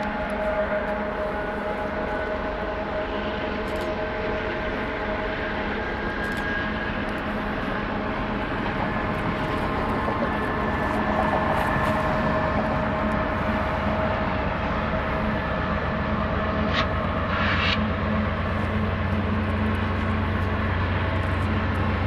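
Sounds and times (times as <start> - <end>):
diesel freight train passing: 0.0 - 22.0.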